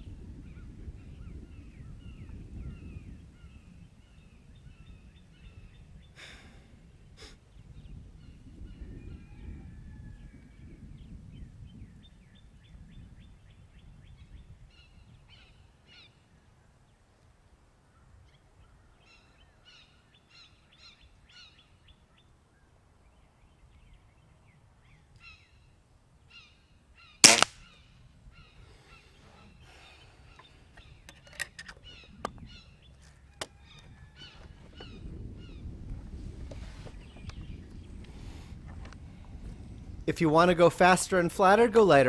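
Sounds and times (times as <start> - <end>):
birds chirping: 17.9 - 35.8
air rifle shot: 27.2 - 27.7.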